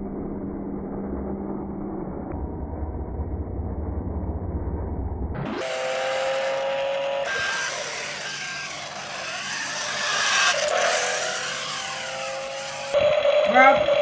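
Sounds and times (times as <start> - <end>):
toy tank motors whining: 5.5 - 14.0.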